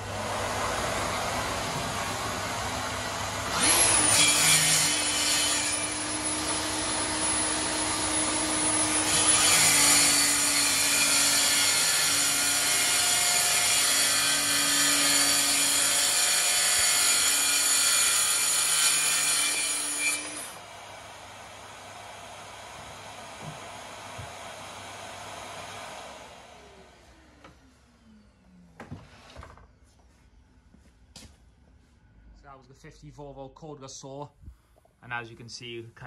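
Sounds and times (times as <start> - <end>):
dust extractor humming: 0.0 - 4.0
track saw cutting: 0.0 - 27.4.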